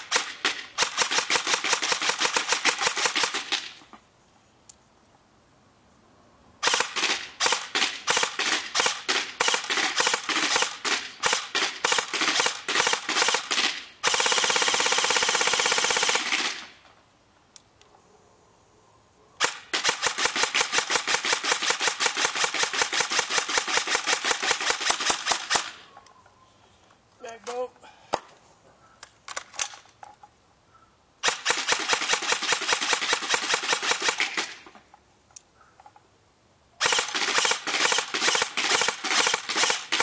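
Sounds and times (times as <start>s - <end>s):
airsoft rifle firing: 0.0s - 3.8s, 6.6s - 16.8s, 19.4s - 25.8s, 31.2s - 34.7s, 36.8s - 40.0s.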